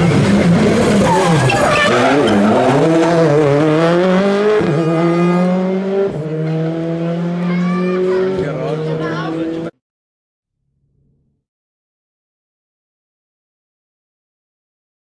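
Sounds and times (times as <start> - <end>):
rally car engine revving: 0.0 - 9.8.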